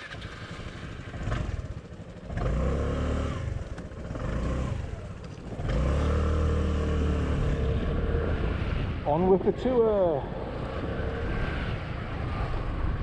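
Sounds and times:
scooter engine accelerating: 0.0s - 9.1s.

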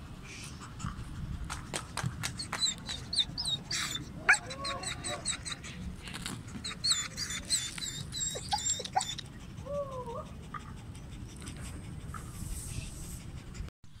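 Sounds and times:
low background rumble: 0.0s - 14.0s
dog whimpering and whining: 2.4s - 5.8s, 6.5s - 10.4s.

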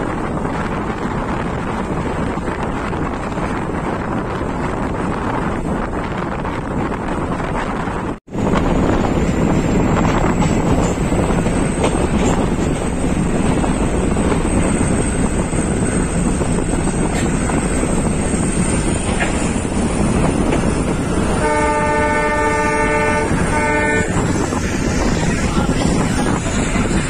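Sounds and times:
train rumble: 0.0s - 27.0s
wind noise: 0.0s - 27.0s
train horn: 21.4s - 24.4s.

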